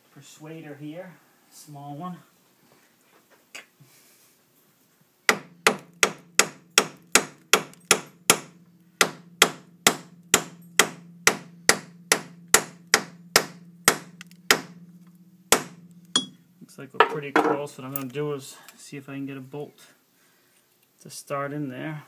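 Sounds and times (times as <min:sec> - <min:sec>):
hammer striking metal: 0:05.3 - 0:16.4.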